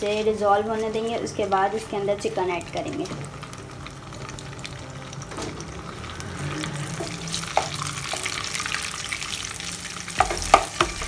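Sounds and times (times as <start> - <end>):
oil and margarine sizzling: 0.0 - 11.0
wooden spatula knocking on pan: 10.2 - 11.0.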